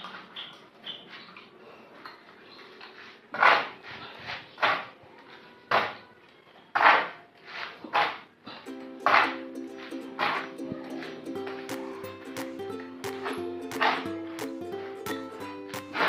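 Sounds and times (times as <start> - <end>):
shovel scraping on concrete: 6.8 - 8.2.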